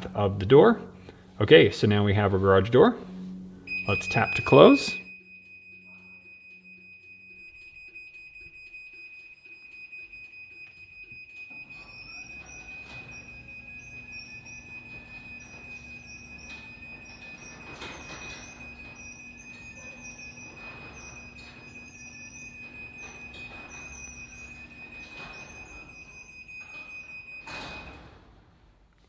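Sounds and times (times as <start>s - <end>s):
garage door opener motor: 0.0s - 28.9s
high-pitched safety beeping: 3.0s - 27.9s
roller squeaks: 11.4s - 28.0s
garage door rumbling down tracks: 11.6s - 28.9s.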